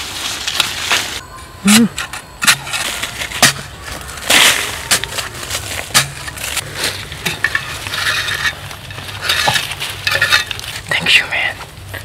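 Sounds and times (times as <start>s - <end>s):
metal hoe scraping soil: 1.8s - 11.0s.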